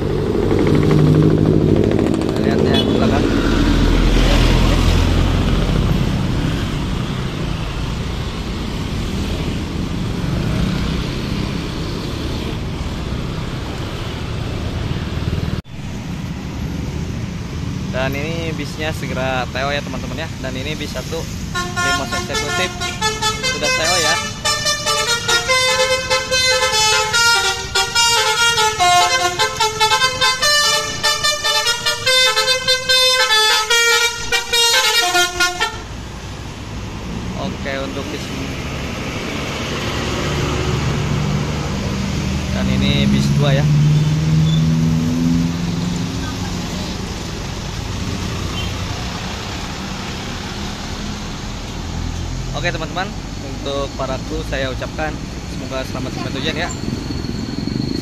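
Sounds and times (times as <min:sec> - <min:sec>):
car engines: 0:00.0 - 0:58.0
motorcycle engines: 0:00.0 - 0:58.0
musical bus horn melody: 0:02.7 - 0:03.2, 0:21.5 - 0:35.9.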